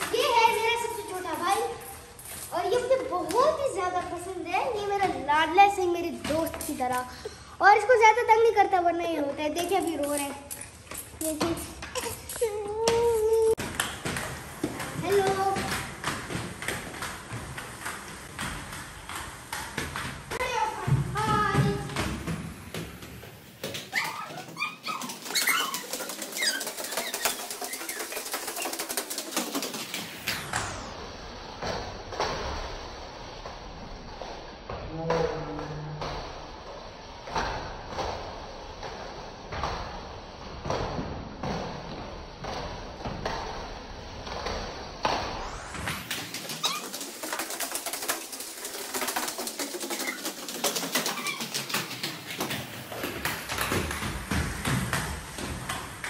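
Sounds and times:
skate wheels clattering on floor: 0.0s - 56.0s
short high squeaks: 23.9s - 28.8s, 46.4s - 47.8s.

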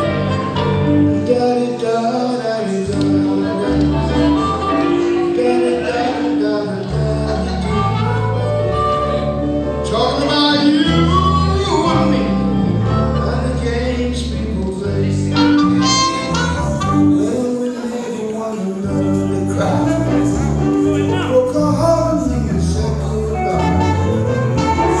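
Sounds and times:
harmonica lead: 0.0s - 1.4s, 3.9s - 6.4s, 7.2s - 14.1s, 15.2s - 17.6s, 23.4s - 25.0s
blues band playing: 0.0s - 25.0s.

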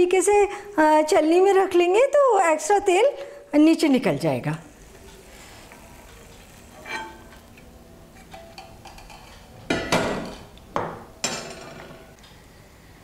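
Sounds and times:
kitchen utensils clinking: 6.1s - 7.5s, 8.2s - 10.5s, 11.2s - 12.2s.

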